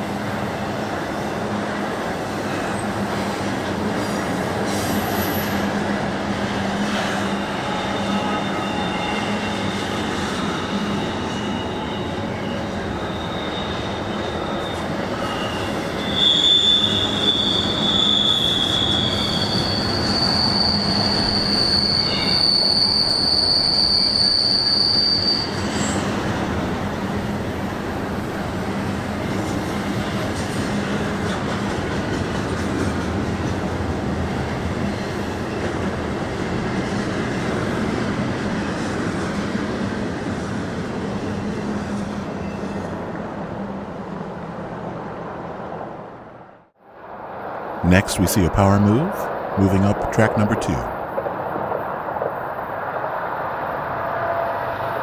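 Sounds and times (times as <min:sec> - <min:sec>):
train wheels rumbling on rails: 0:00.0 - 0:43.4
high-pitched wheel squeal: 0:07.3 - 0:26.1.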